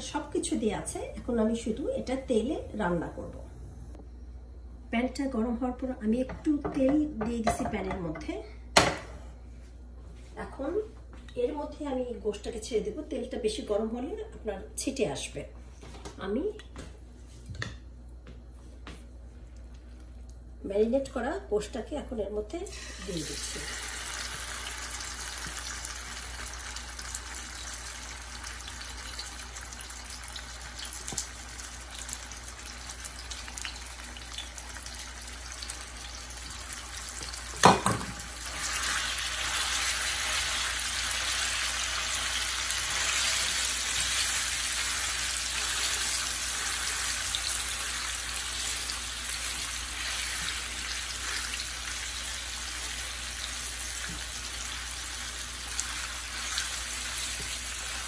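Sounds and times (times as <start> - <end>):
beef sizzling in hot oil: 22.7 - 58.0.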